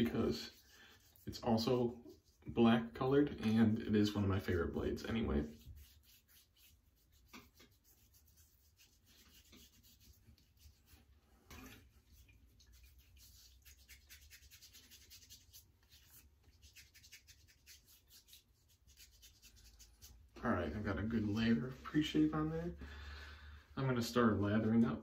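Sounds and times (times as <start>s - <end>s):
fingertips rubbing stubbly skin: 0.0s - 2.4s, 5.1s - 11.1s, 12.1s - 20.3s.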